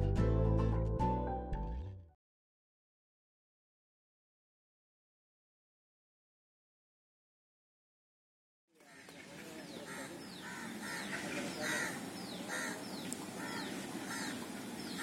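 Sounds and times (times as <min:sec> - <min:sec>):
bird calling: 0:08.8 - 0:15.0.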